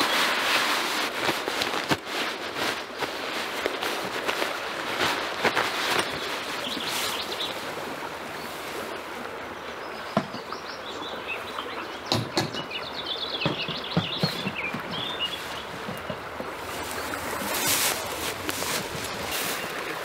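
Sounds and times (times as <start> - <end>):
nylon fabric rustling: 0.0 - 7.5, 16.4 - 20.0
songbirds singing: 6.0 - 7.7, 9.3 - 20.0
sharp knocks: 12.1 - 12.7, 13.4 - 16.3.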